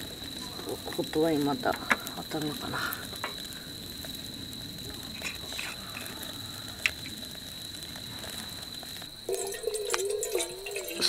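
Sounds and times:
glass bottle handled: 9.3s - 11.0s.

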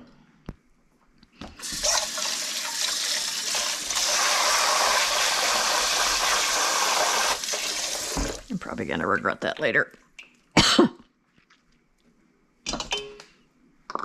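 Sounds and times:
water running from a tap: 1.6s - 8.5s.

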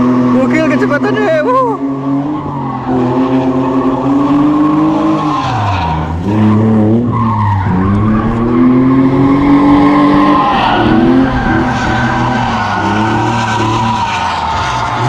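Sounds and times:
car engine revving: 0.0s - 15.0s
tyres squealing: 5.0s - 15.0s.

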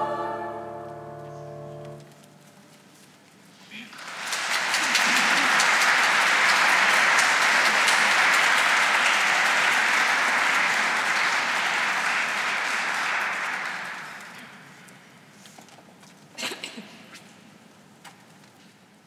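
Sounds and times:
audience applauding: 3.9s - 14.8s.

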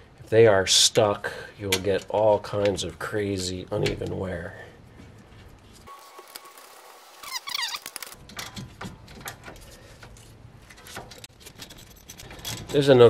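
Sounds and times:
metallic squeak: 7.2s - 8.2s.

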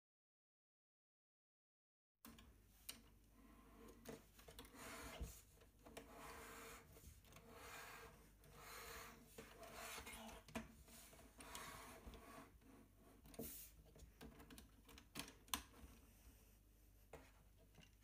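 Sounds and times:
plastic toy rubbing on tabletop: 4.5s - 13.8s.

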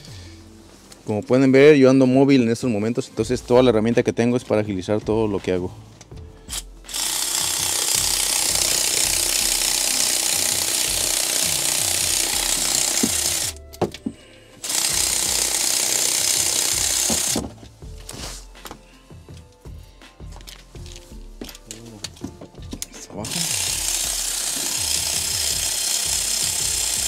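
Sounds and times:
electric ratchet running: 6.5s - 13.6s, 14.6s - 17.4s, 23.2s - 27.0s.

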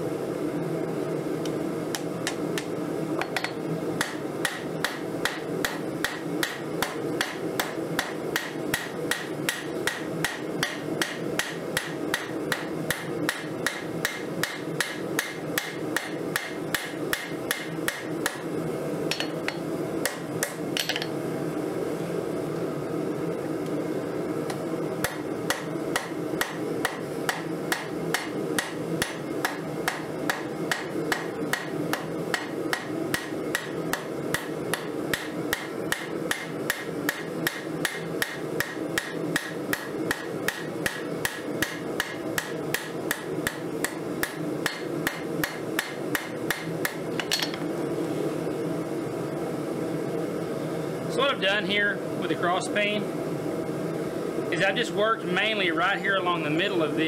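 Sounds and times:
steady background noise: 0.0s - 57.0s
hammer striking hot steel on anvil: 1.9s - 18.5s, 19.1s - 21.1s, 25.0s - 47.6s.

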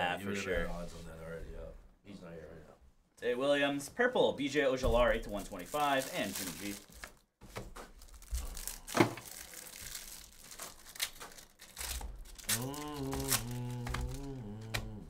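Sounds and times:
foil wrapper crinkling and tearing: 5.2s - 14.4s.

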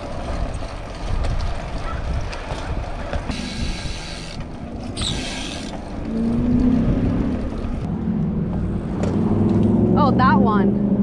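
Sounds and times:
wind rumble on microphone: 0.0s - 11.0s.

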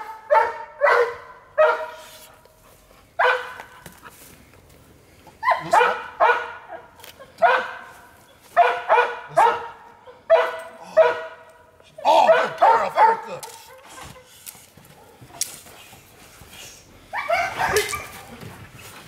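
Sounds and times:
dog barking high-pitched: 0.0s - 2.1s, 3.2s - 3.7s, 5.4s - 7.9s, 8.6s - 11.5s, 12.1s - 13.8s, 17.1s - 18.2s.

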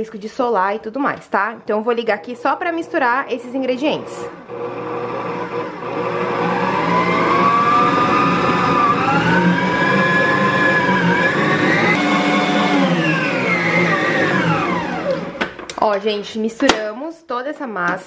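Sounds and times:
stand mixer motor whining: 2.2s - 15.8s.

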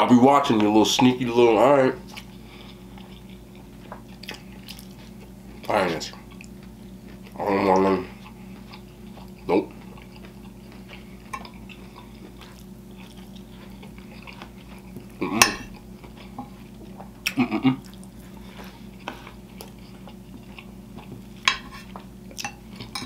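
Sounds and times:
steady low hum: 0.0s - 23.0s
chewing: 2.0s - 23.0s
fork scraping and clinking on plate: 21.5s - 23.0s.

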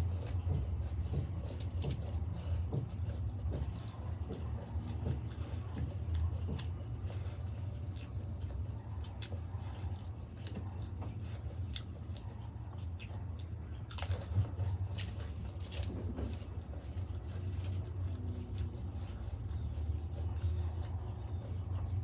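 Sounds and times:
chewing and crunching: 0.0s - 22.0s
low hum: 0.0s - 22.0s.

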